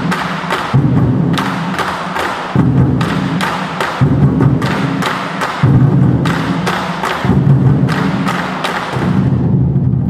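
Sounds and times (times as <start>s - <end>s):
large barrel drums beaten in unison: 0.0s - 10.0s.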